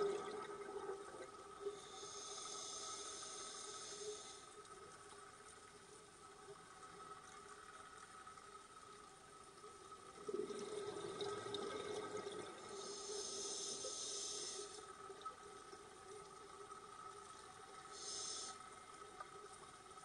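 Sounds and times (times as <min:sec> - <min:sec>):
underwater exhaled bubbles: 0:00.0 - 0:02.0, 0:10.0 - 0:13.0
faint steady hum: 0:00.0 - 0:20.0
regulator hissing on inhale: 0:01.6 - 0:04.9, 0:12.6 - 0:15.3, 0:17.0 - 0:19.2.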